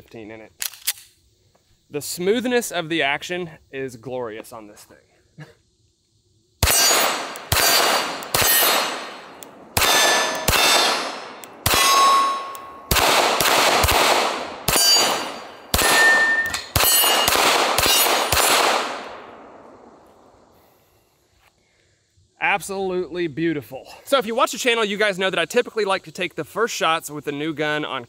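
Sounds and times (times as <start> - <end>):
steel targets ringing: 6.6 - 12.9, 14.7 - 18.5
pistol shots: 6.6 - 19.5.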